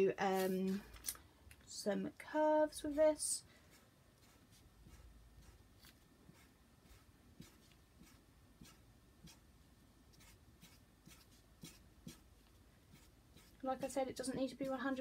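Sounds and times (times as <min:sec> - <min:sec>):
marker pen scratching paper: 0:02.9 - 0:09.4, 0:10.1 - 0:15.0.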